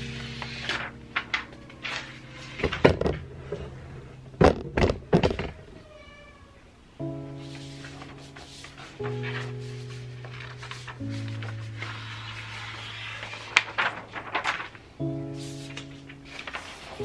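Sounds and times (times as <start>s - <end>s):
plastic sheets crinkling: 0.0s - 3.7s, 7.4s - 17.0s
background music: 0.0s - 5.2s, 7.0s - 17.0s.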